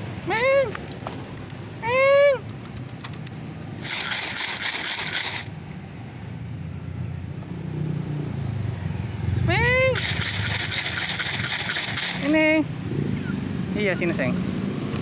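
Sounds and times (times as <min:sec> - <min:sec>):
street traffic rumbling: 0:00.0 - 0:15.0
rushing scraping hiss: 0:03.8 - 0:05.5, 0:10.0 - 0:12.4.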